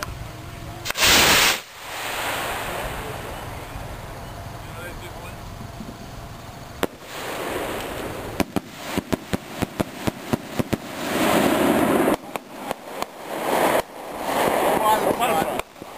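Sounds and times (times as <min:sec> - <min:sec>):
firework pops: 0:00.8 - 0:03.0, 0:06.8 - 0:15.9
firework bang: 0:00.8 - 0:04.0, 0:06.8 - 0:15.9
loud rushing noise: 0:00.8 - 0:05.4, 0:06.9 - 0:15.6.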